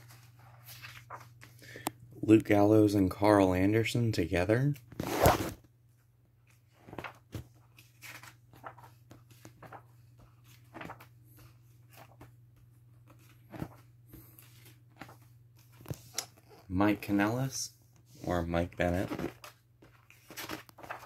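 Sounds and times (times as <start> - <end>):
book pages rustling: 0.0 - 1.6, 6.4 - 17.2, 17.9 - 21.0.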